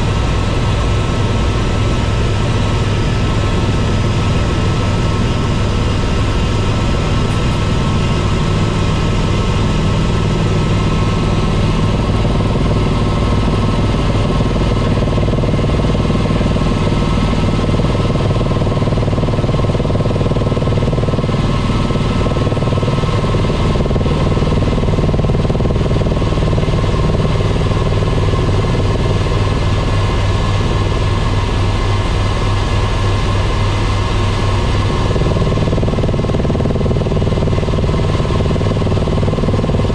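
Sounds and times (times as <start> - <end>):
helicopter engine and rotor: 0.0 - 39.9.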